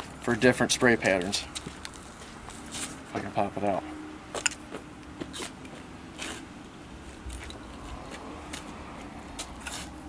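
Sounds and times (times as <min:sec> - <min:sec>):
light clicks and scrapes: 0:01.1 - 0:03.3, 0:07.2 - 0:10.0.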